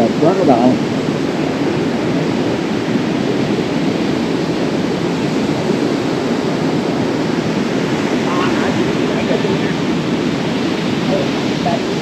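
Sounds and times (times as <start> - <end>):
sea surf: 0.0 - 12.0
wind: 0.0 - 12.0.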